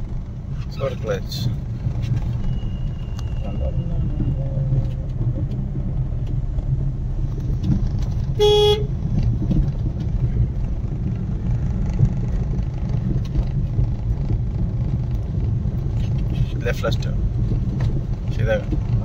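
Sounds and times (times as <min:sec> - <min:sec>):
car engine and tyre rumble: 0:00.0 - 0:19.0
vehicle horn toot: 0:08.4 - 0:08.9.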